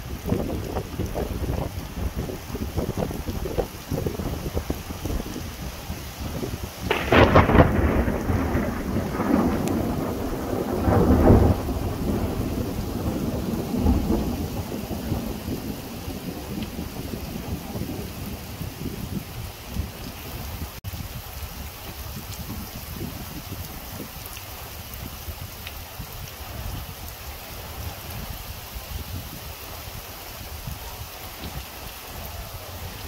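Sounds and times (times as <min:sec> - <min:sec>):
thunder rolling: 0:00.0 - 0:20.1
heavy rain: 0:00.0 - 0:33.0.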